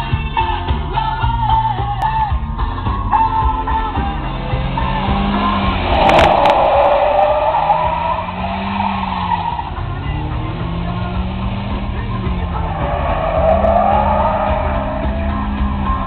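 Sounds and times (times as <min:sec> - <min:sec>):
car engine revving: 0:02.1 - 0:16.0
tyres squealing: 0:04.7 - 0:16.0.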